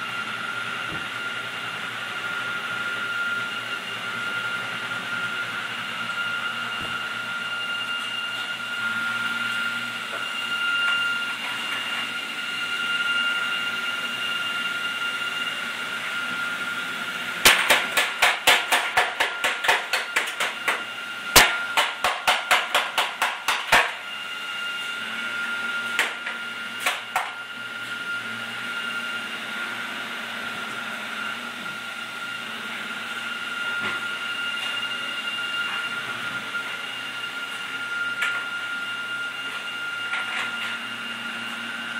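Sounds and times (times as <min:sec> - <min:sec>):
toy hammer banging on workbench: 0:17.5 - 0:20.8, 0:21.4 - 0:23.9.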